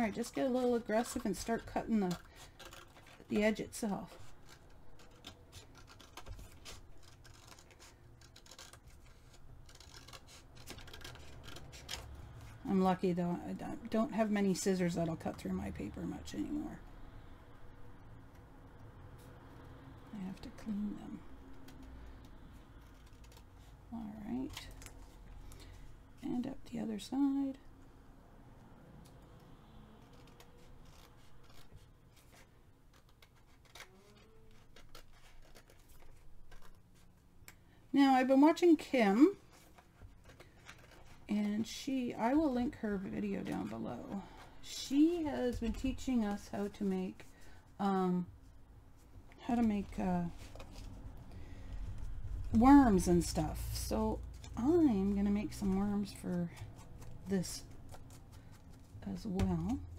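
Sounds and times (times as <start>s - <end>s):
scissors cutting paper: 0.0s - 16.6s, 20.1s - 25.6s, 29.4s - 37.1s, 39.5s - 41.7s.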